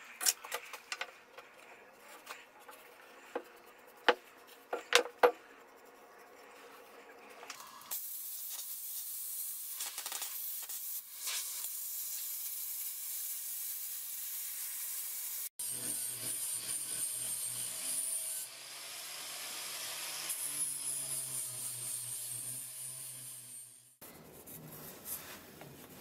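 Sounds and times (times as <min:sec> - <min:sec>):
plasma cutter hissing: 0:07.7 - 0:15.5.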